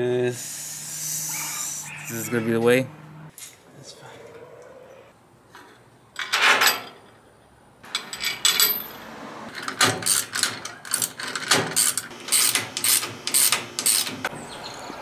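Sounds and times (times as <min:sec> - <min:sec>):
ratchet wrench clicking: 0:10.0 - 0:14.1.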